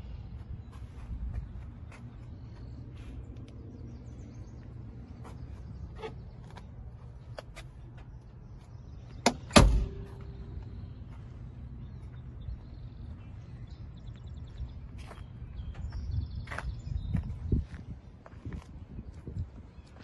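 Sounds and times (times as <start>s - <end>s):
low rumble: 8.0s - 16.4s.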